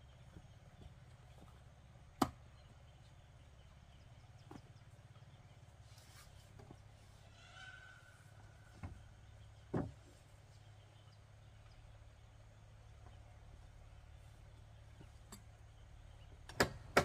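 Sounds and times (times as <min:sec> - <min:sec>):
wood knocking on wood: 0:09.7 - 0:10.1.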